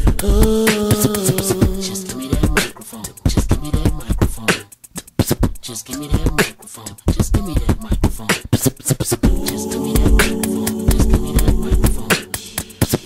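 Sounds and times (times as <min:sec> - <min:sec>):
hummed vocal tones: 0:00.0 - 0:02.7, 0:09.2 - 0:13.0
person beatboxing: 0:00.0 - 0:13.0.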